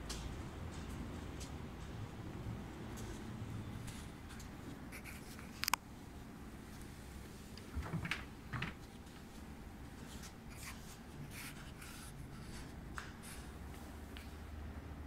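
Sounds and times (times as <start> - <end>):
cabinet and fridge doors clunking: 7.7 - 8.8
faint rubbing and handling: 8.8 - 14.4.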